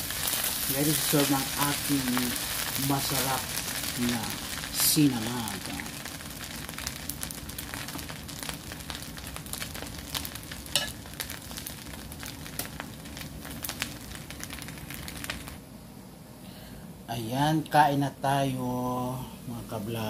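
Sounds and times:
rice sizzling in a frying pan: 0.0 - 15.6.

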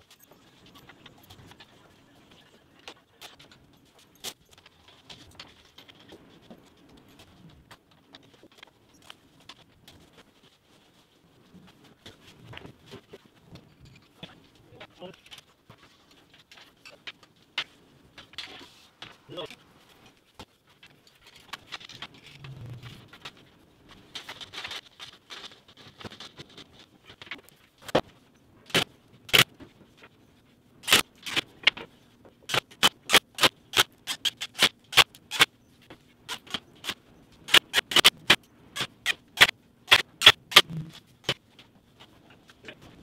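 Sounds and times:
brief low hum: 22.4 - 23.1, 40.6 - 41.0.

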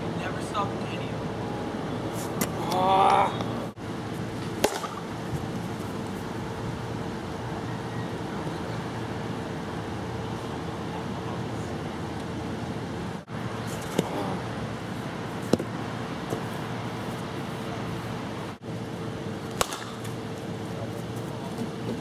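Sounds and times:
faint steady hum: 0.0 - 22.0
plastic bat striking ball: 4.6 - 5.1, 19.5 - 20.2.

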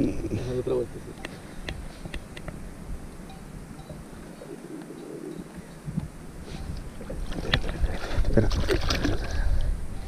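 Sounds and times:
background hiss: 0.0 - 10.0
bird cooing faintly: 3.9 - 5.9.

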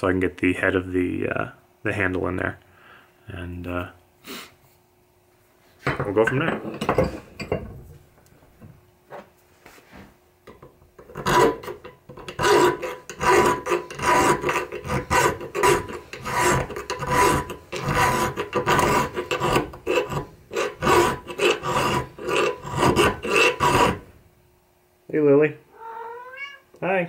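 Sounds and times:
file rasping on metal: 11.0 - 24.1.

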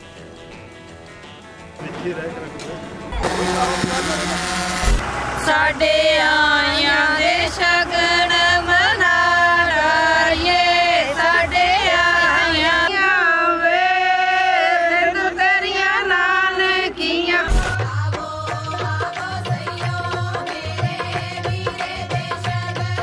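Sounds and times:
women singing folk song: 5.3 - 23.0.

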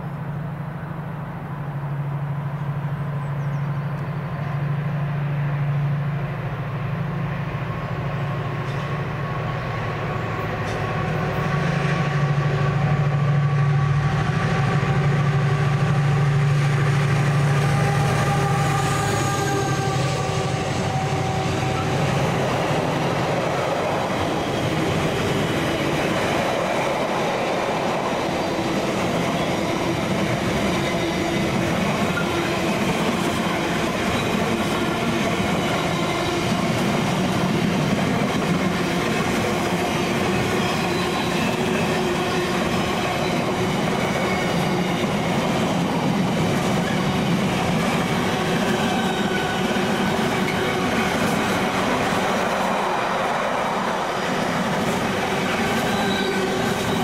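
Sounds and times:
freight train wagons rolling past: 0.0 - 57.0.

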